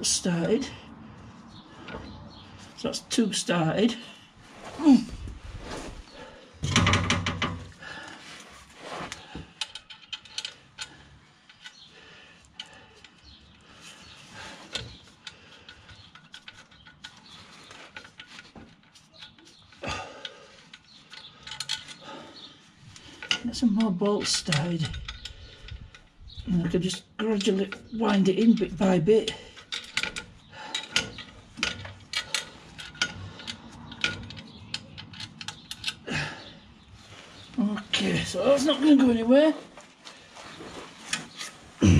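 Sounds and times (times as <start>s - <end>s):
bolts clicking and scraping: 0.0s - 41.8s
rustling clatter: 12.5s - 41.8s.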